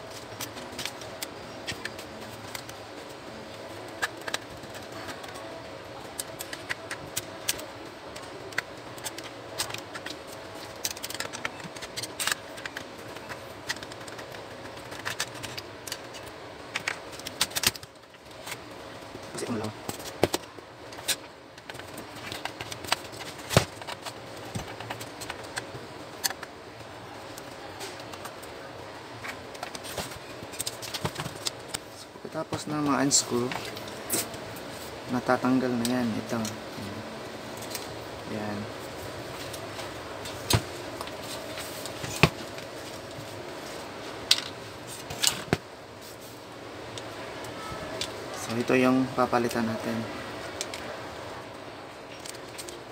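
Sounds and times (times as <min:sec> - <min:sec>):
screwdriver clicks and scrapes on metal: 0:06.1 - 0:18.6.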